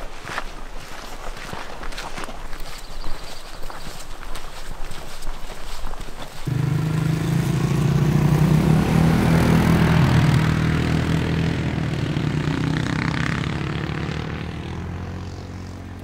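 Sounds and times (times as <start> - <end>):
atv engine passing by: 6.4 - 16.0.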